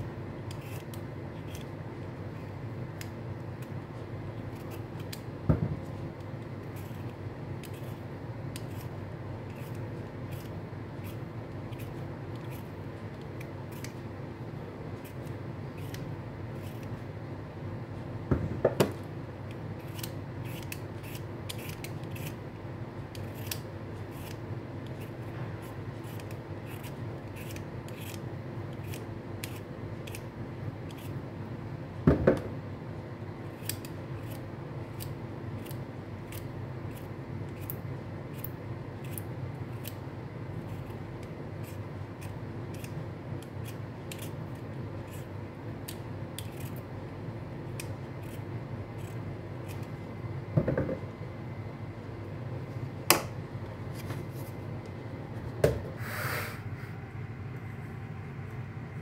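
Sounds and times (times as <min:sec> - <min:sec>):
steady low hum: 0:00.0 - 0:59.0
peeler scraping beetroot: 0:00.5 - 0:01.8, 0:06.6 - 0:14.0, 0:15.0 - 0:16.9, 0:19.8 - 0:22.5, 0:23.1 - 0:30.3, 0:30.9 - 0:31.2, 0:33.4 - 0:40.0, 0:40.6 - 0:45.4, 0:46.4 - 0:46.9, 0:47.7 - 0:49.9.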